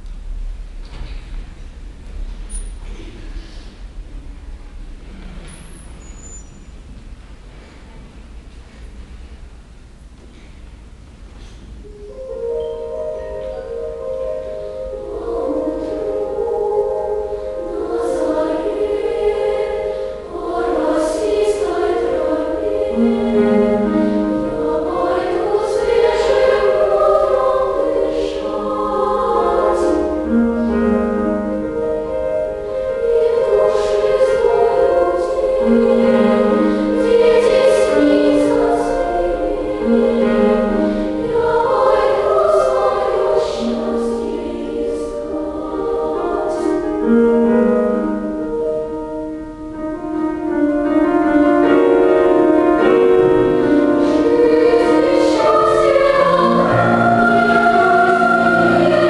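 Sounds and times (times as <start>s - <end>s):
piano accompaniment: 11.7s - 59.0s
female choir singing: 13.4s - 48.2s, 52.5s - 59.0s.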